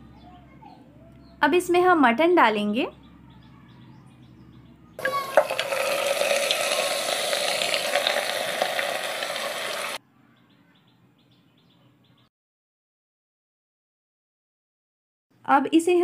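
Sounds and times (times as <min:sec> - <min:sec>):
meat sizzling in hot oil: 0:05.0 - 0:10.0.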